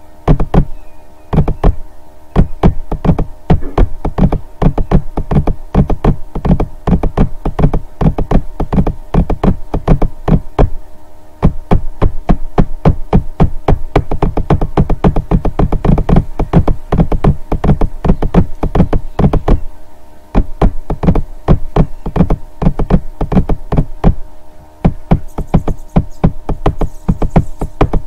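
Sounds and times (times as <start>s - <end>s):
electronic music with fast beat: 24.8s - 28.0s.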